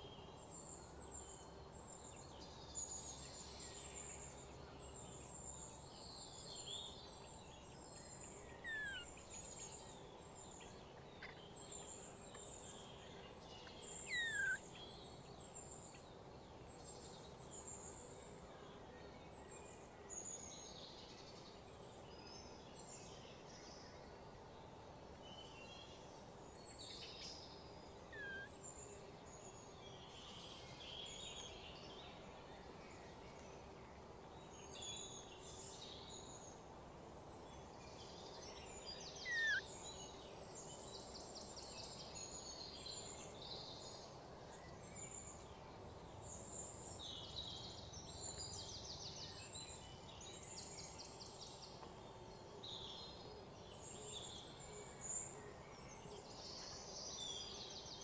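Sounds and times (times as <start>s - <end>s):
faint steady hum: 0.0s - 58.0s
birds chirping and trilling: 2.2s - 16.0s, 26.6s - 33.2s, 37.9s - 40.9s.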